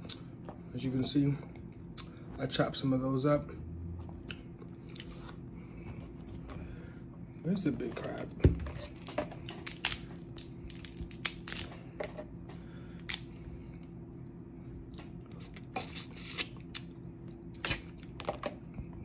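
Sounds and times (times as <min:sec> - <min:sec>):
crab shells cracking: 0:09.5 - 0:11.7.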